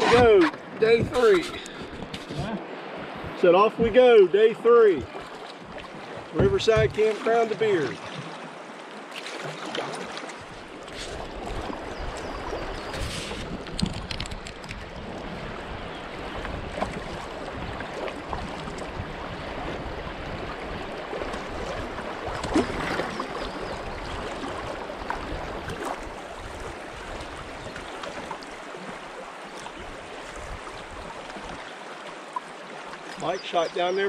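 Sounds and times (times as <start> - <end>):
river water splashing against canoe: 0.0 - 34.0
wind rumbling on microphone: 10.4 - 28.4, 29.8 - 31.6.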